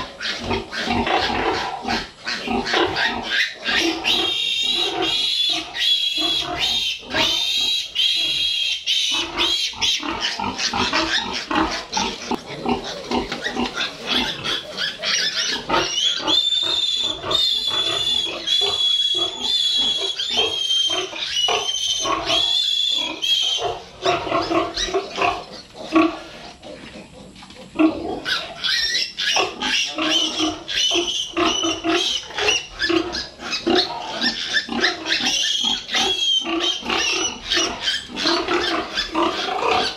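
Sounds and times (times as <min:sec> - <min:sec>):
piglets squealing loudly: 0:00.0 - 0:25.6, 0:28.1 - 0:39.9.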